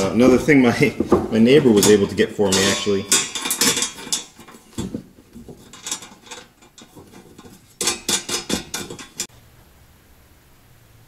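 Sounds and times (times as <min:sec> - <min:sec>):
metallic clinks and rattles: 0:01.1 - 0:09.3.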